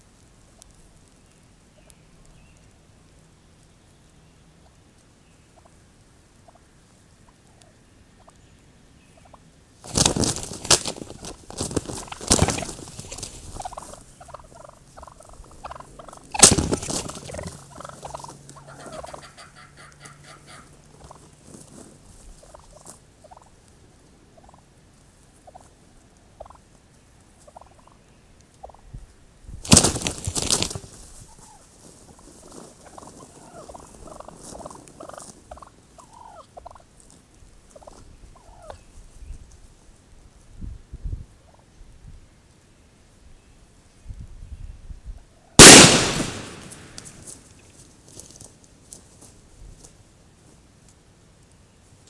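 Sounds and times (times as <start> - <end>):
turkeys gobbling loudly: 6.4 - 6.6, 10.7 - 21.3, 22.4 - 23.5, 24.4 - 24.7, 25.4 - 25.7, 26.4 - 26.7, 32.8 - 36.9, 37.7 - 38.8, 45.4 - 47.1
soft short turkey calls: 17.7 - 21.2.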